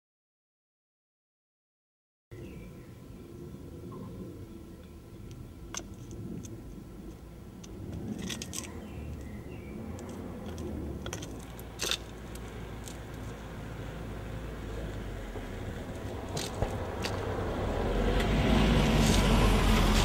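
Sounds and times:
car rumble: 2.4s - 20.0s
high heels clicking on road: 5.7s - 20.0s.

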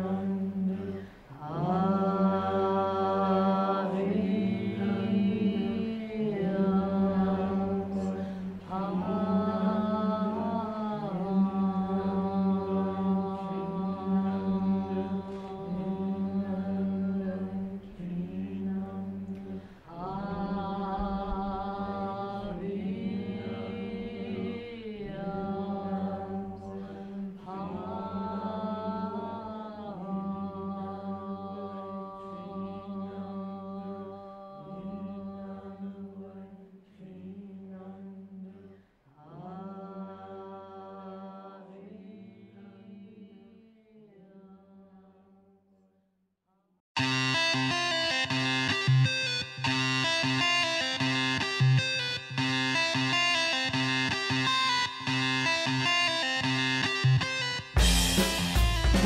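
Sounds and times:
voices chanting held notes: 0.0s - 44.5s.

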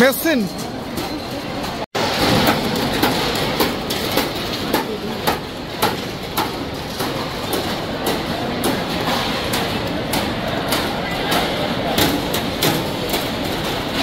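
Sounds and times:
crowd chatter: 0.0s - 14.0s.

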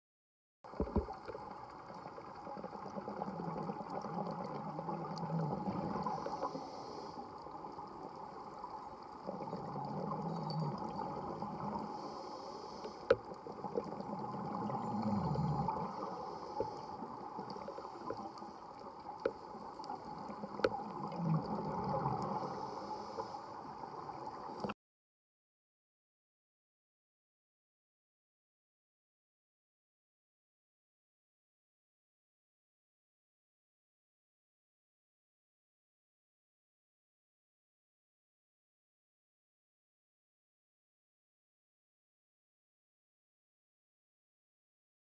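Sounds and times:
exhaled air bubbling: 0.7s - 12.2s, 13.0s - 23.1s
muffled water noise: 0.7s - 24.8s
regulator inhale hiss: 6.0s - 7.5s, 11.6s - 18.6s, 22.2s - 24.6s.

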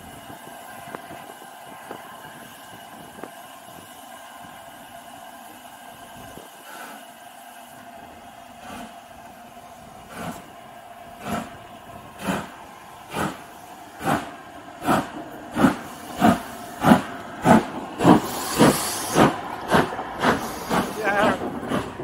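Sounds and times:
steam hissing: 0.0s - 22.0s
steam locomotive chuffing: 0.0s - 22.0s.

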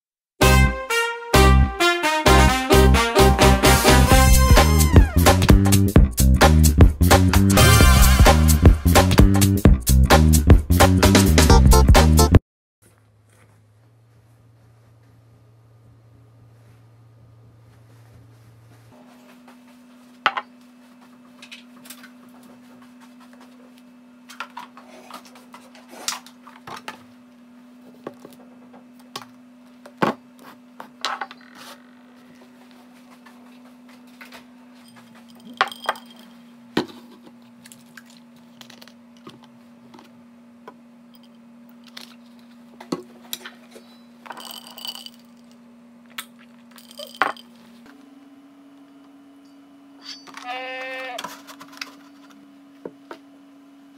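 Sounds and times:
low steady hum: 12.9s - 53.9s
tableware knocking and clinking: 34.9s - 36.3s, 46.8s - 47.6s.

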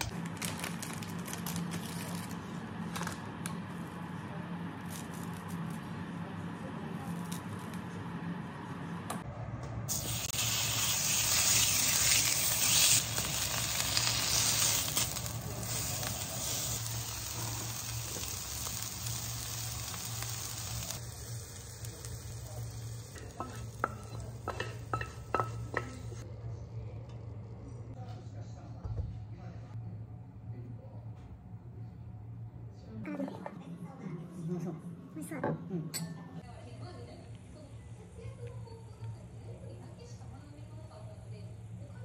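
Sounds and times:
meat sizzling in a frying pan: 9.9s - 26.2s.

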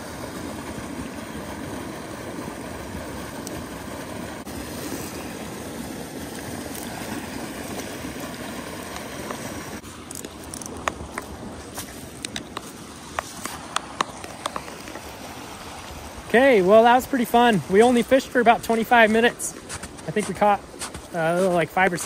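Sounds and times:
creek running over riffle: 0.0s - 22.0s
footsteps in snow: 11.5s - 14.9s, 19.6s - 21.6s.

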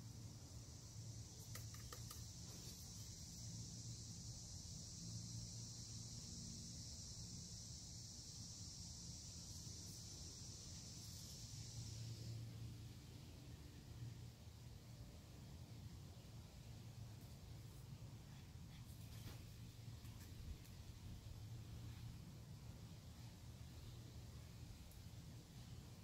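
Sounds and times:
high-pitched insect buzz: 0.0s - 12.8s
light clicks: 1.4s - 2.4s.

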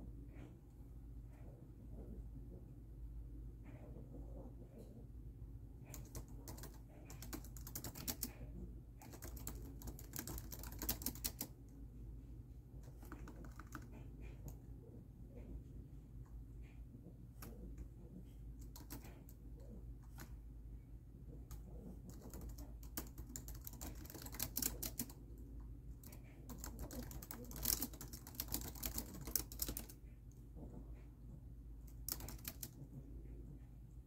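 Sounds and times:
steady low hum: 0.0s - 34.0s
laptop keyboard typing: 5.8s - 11.6s, 12.8s - 14.6s, 18.6s - 20.4s, 21.5s - 25.2s, 26.0s - 30.0s, 31.9s - 32.8s.

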